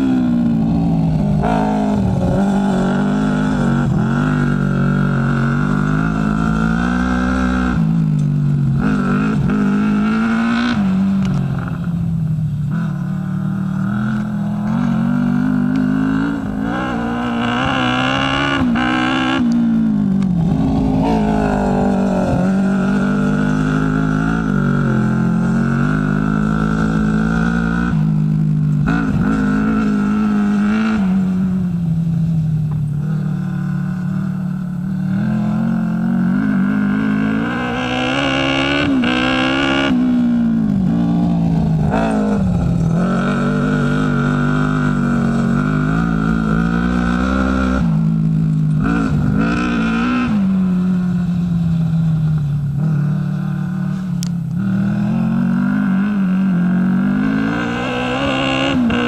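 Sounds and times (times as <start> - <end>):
buggy engine revving: 0.0 - 59.0.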